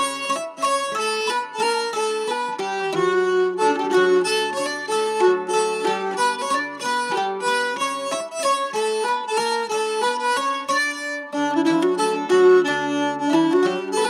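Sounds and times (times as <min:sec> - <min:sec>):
string accompaniment: 0:00.0 - 0:14.0.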